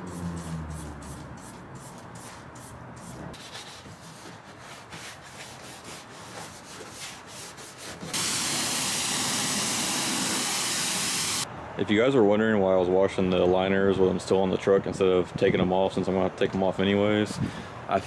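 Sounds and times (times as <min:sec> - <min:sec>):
pressure washer spraying: 0:08.2 - 0:11.5.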